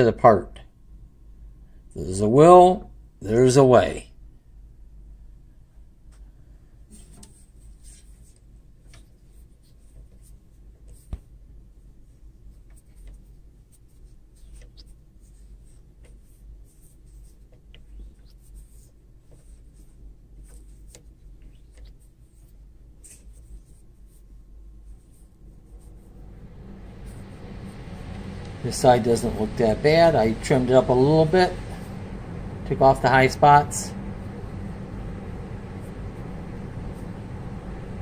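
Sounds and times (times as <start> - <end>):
faint low hum: 0.0 - 38.0
light scratching and ticking: 12.6 - 24.2.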